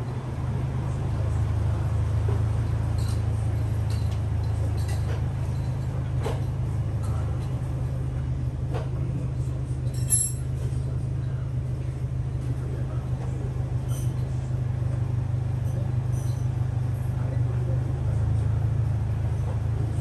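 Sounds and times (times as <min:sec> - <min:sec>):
low mechanical drone: 0:00.0 - 0:20.0.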